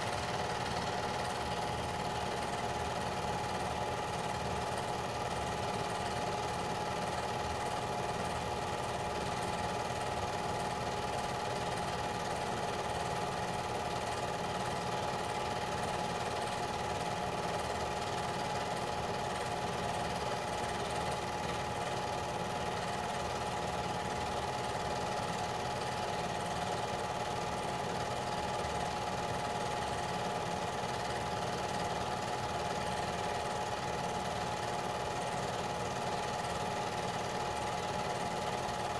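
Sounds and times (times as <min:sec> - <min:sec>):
film projector whirring: 0:00.0 - 0:38.9.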